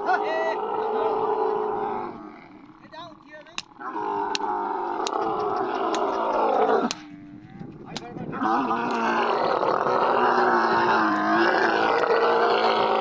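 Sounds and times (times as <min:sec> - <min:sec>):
camel groaning loudly: 0:00.0 - 0:13.0.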